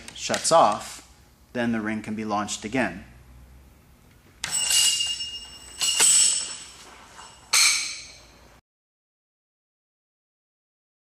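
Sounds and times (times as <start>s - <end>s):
metal ring clanking: 4.4s - 8.3s.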